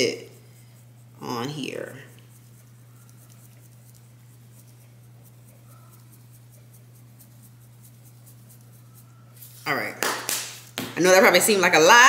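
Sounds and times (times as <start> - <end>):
steady low hum: 0.0 - 12.0
salt shaker scratchy ticks: 0.3 - 9.6.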